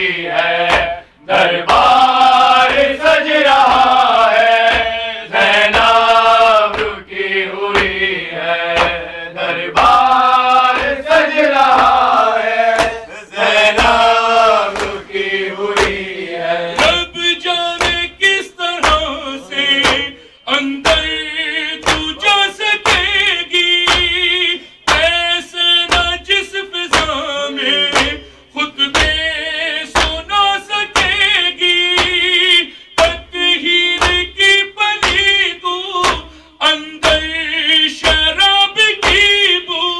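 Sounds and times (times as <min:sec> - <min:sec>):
hands beating on chests: 0:00.7 - 0:01.0, 0:02.6 - 0:04.0, 0:04.6 - 0:05.0, 0:06.7 - 0:07.1, 0:07.7 - 0:08.1, 0:08.7 - 0:09.0, 0:09.7 - 0:15.0, 0:15.8 - 0:16.1, 0:16.8 - 0:17.1, 0:17.8 - 0:18.2, 0:18.8 - 0:20.2, 0:20.8 - 0:21.2, 0:21.8 - 0:24.3, 0:24.9 - 0:25.2, 0:26.9 - 0:27.2, 0:27.9 - 0:28.2, 0:28.8 - 0:29.3, 0:30.0 - 0:30.3, 0:31.0 - 0:31.3, 0:31.9 - 0:32.4, 0:34.0 - 0:34.4, 0:35.0 - 0:35.4, 0:36.0 - 0:36.4, 0:37.0 - 0:38.4, 0:39.0 - 0:39.5
man chanting into a microphone: 0:16.6 - 0:39.9.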